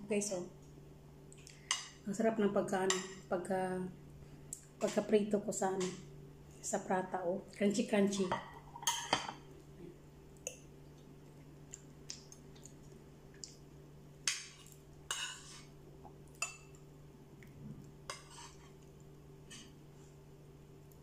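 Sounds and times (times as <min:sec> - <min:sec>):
steady low hum: 0:00.0 - 0:21.0
chewing crisp food: 0:10.9 - 0:13.8.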